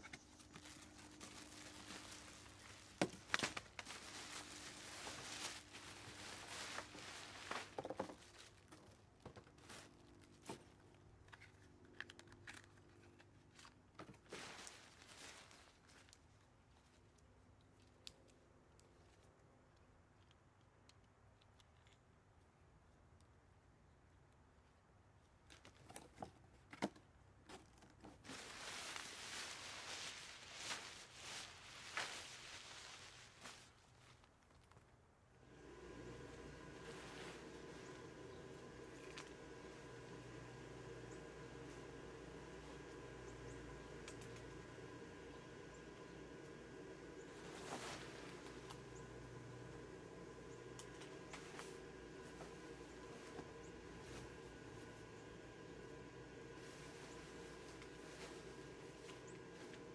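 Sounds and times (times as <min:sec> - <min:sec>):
fabric rustling: 0:00.0 - 0:10.8, 0:12.5 - 0:17.0, 0:28.2 - 0:34.5, 0:35.4 - 0:40.5, 0:47.2 - 0:59.9
plastic wrapping crinkling: 0:00.0 - 0:17.2, 0:28.0 - 0:34.9.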